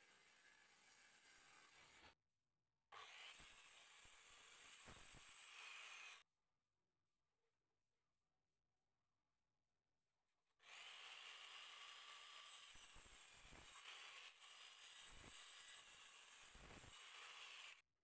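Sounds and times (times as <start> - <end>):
circular saw cutting wood: 0.0 - 2.2, 3.0 - 6.2, 10.6 - 17.9.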